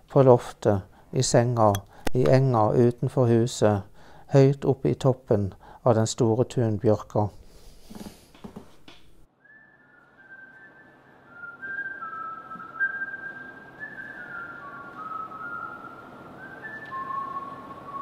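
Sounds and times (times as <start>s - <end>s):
person whistling a slow tune: 9.4s - 18.0s.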